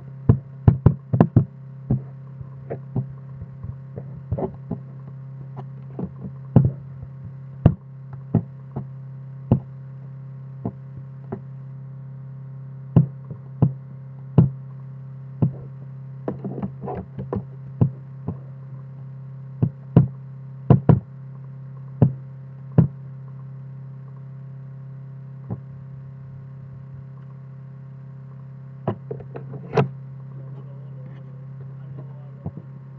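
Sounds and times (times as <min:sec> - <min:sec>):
steady low hum: 0:00.0 - 0:32.9
sharp knocks: 0:00.3 - 0:05.0, 0:05.6 - 0:08.9, 0:13.0 - 0:13.8, 0:19.6 - 0:21.1.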